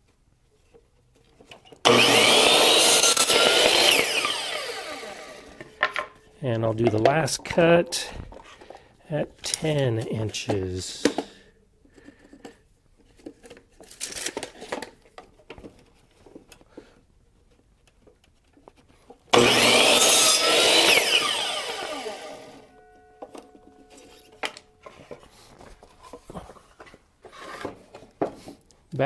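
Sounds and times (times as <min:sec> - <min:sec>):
miter saw cutting wood: 0:01.8 - 0:05.6, 0:19.3 - 0:22.7
handling wooden board: 0:05.6 - 0:19.3, 0:23.2 - 0:28.7.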